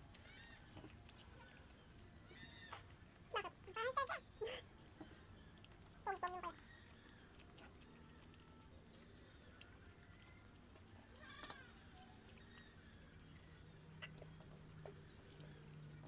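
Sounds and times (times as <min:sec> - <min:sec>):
animal calling: 0:00.1 - 0:16.0.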